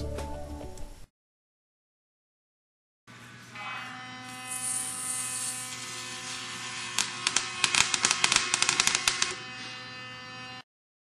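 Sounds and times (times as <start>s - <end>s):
electric arc hissing and crackling: 4.5s - 9.4s.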